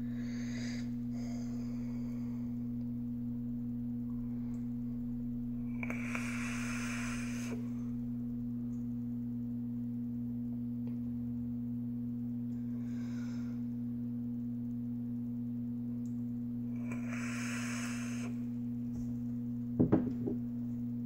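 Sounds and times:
low hum: 0.0s - 21.0s
vape hiss: 5.6s - 8.0s, 16.7s - 19.0s.

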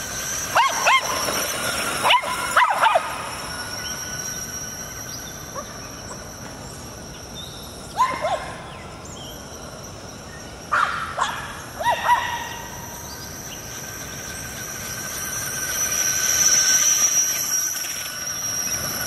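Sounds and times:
electric motor high-pitched whine: 0.0s - 8.0s, 11.6s - 19.0s
dogs yipping and barking: 0.3s - 4.4s, 5.0s - 6.5s, 7.9s - 8.8s, 10.7s - 13.8s.

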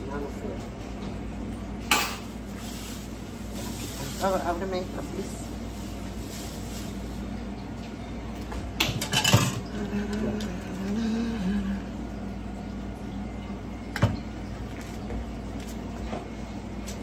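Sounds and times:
plastic bag crinkling: 2.2s - 7.5s.

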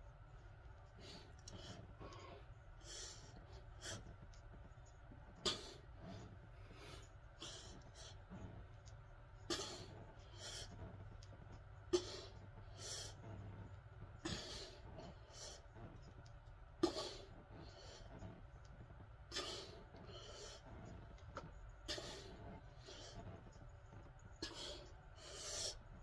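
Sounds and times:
person breathing hard: 0.9s - 4.2s, 5.4s - 8.6s, 11.9s - 13.6s, 14.2s - 15.9s, 19.3s - 21.1s, 21.8s - 23.4s, 24.4s - 26.0s.

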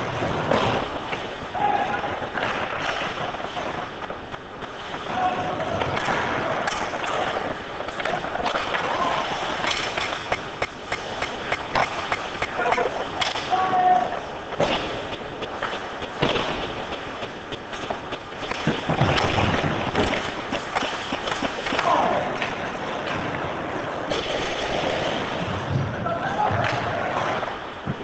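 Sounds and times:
hockey sticks and puck clacking: 0.0s - 28.0s
skates scraping ice: 0.0s - 28.0s
people shouting: 1.5s - 2.2s, 5.1s - 5.8s, 13.4s - 14.3s, 21.7s - 22.4s.

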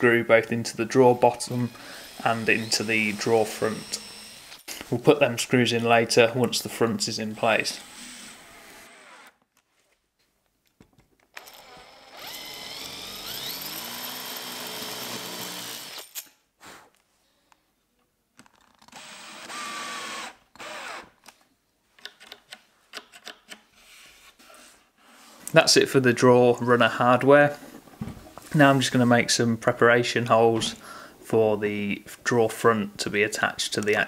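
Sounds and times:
cordless drill driving screws: 1.3s - 4.7s, 7.3s - 9.4s, 11.3s - 16.3s, 18.8s - 21.2s.

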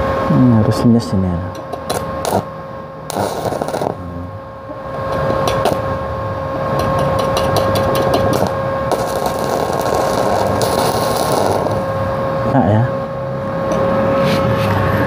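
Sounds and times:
welder machine whine: 0.0s - 15.0s
welding arc crackling: 1.6s - 4.3s, 5.0s - 5.9s, 6.8s - 12.0s
electrode scratching on steel: 1.8s - 2.5s, 3.1s - 4.1s, 7.2s - 11.9s.

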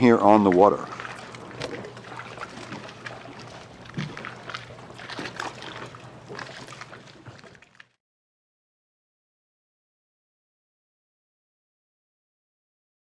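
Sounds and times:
low steady hum: 0.0s - 7.9s
small waves lapping against hull: 0.0s - 8.0s.

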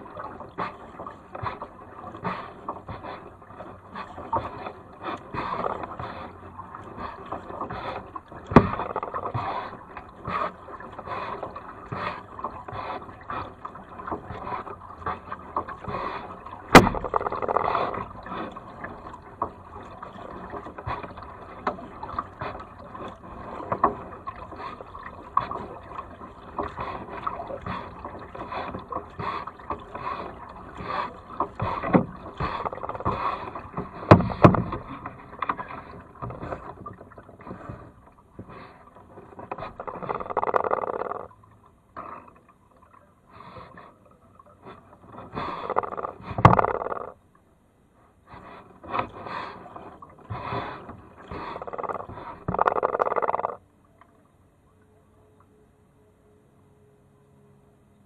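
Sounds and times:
paddle splashing water: 0.0s - 57.7s
sharp knocks: 16.7s - 17.6s.

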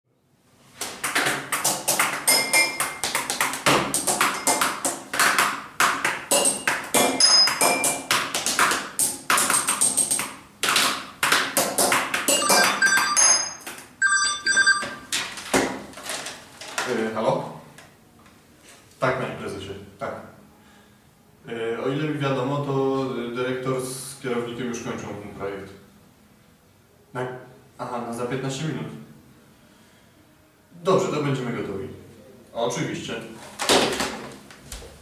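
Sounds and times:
telephone ringing: 12.3s - 15.3s
small objects clattering on a desk: 14.8s - 16.9s.

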